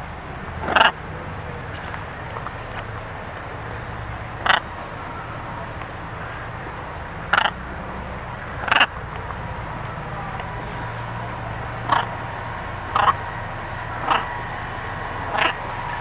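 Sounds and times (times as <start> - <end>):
steady low hum: 0.0 - 16.0
macaws squawking: 7.2 - 7.6, 8.6 - 9.0, 9.6 - 16.0.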